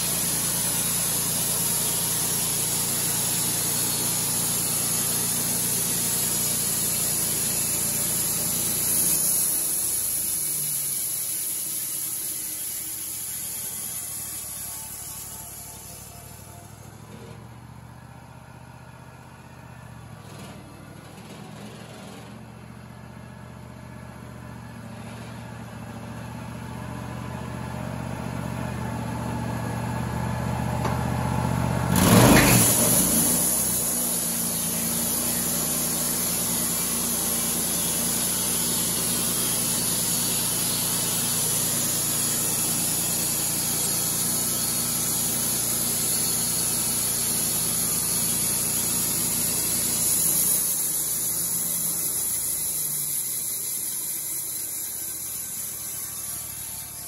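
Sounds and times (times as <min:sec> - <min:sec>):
band saw blade cutting wood: 0:00.0 - 0:16.2, 0:31.9 - 0:57.0
sawmill engine running: 0:00.0 - 0:57.0.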